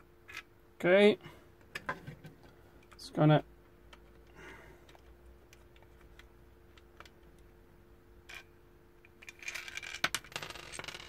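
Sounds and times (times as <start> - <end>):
faint steady hum: 0.0 - 11.0
small parts rattling: 8.2 - 11.0.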